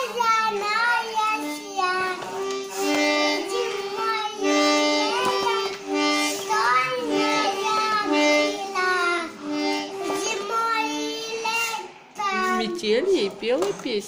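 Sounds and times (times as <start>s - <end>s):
young child singing: 0.0s - 12.8s
toy accordion chords: 0.9s - 13.4s.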